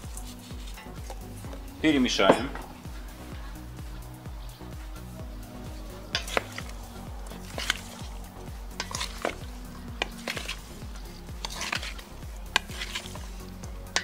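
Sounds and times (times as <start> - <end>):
wooden spatula scraping metal bowl: 0.0 - 2.8, 6.0 - 14.0
background music: 0.0 - 14.0.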